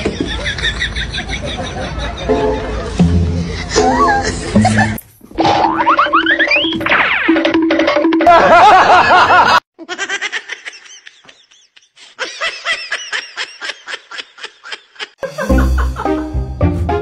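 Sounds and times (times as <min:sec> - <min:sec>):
snickering laughter: 0:00.0 - 0:05.0, 0:08.3 - 0:16.2
music: 0:02.3 - 0:05.0, 0:15.2 - 0:17.0
loud warbling sound effect: 0:05.4 - 0:08.3.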